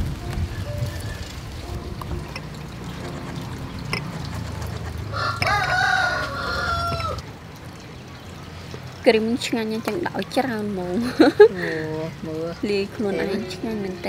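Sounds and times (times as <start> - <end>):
rooster crowing: 5.1 - 7.2.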